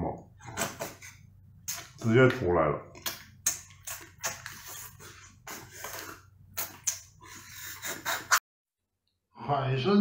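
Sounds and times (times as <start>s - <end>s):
sucking slurps: 3.0s - 8.4s.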